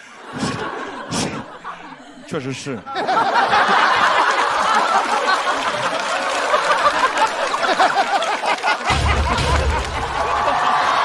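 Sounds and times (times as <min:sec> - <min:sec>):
studio audience laughing: 0:00.0 - 0:11.0.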